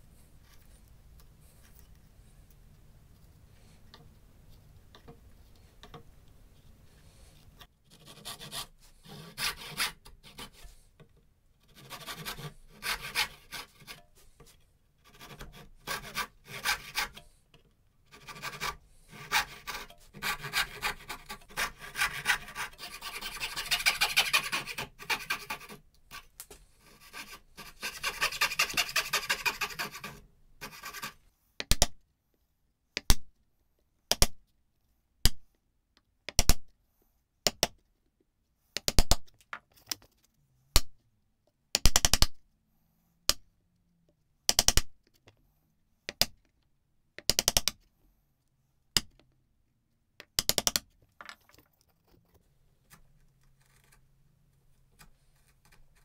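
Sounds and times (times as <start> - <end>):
hand saw cutting hardwood: 11.8 - 14.0, 15.2 - 17.2, 18.2 - 25.8, 27.0 - 30.1.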